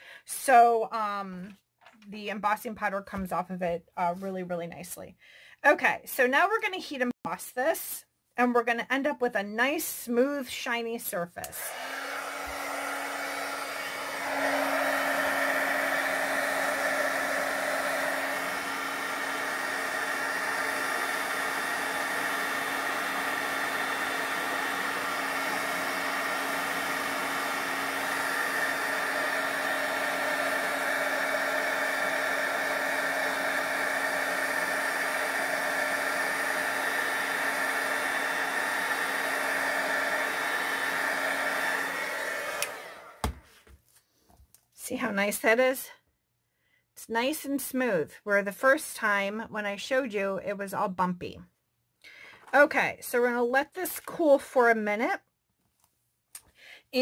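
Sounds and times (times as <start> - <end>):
heat tool fan humming: 11.7 - 43.2.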